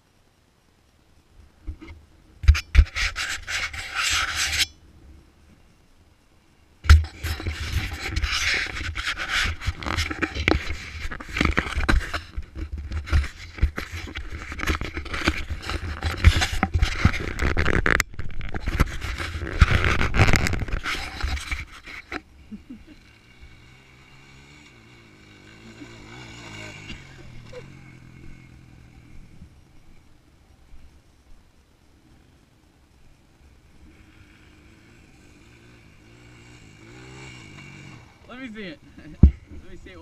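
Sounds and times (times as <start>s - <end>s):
microphone handling noise: 6.8s - 22.7s, 39.0s - 39.7s.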